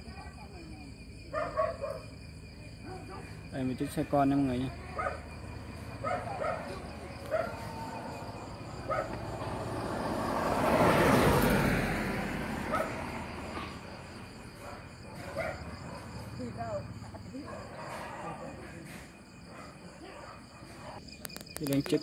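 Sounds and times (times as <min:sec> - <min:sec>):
faint dog barking: 0:01.3 - 0:02.2, 0:02.8 - 0:03.4, 0:04.8 - 0:05.4, 0:06.0 - 0:08.0, 0:08.8 - 0:09.2, 0:12.7 - 0:13.8, 0:14.5 - 0:16.5, 0:17.3 - 0:21.0
car driving past: 0:05.4 - 0:14.6.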